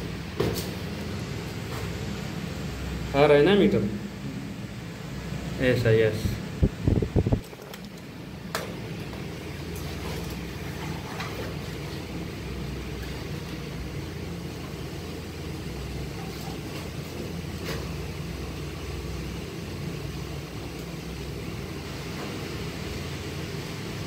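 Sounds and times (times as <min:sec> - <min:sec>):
low machine drone: 0:01.1 - 0:07.3.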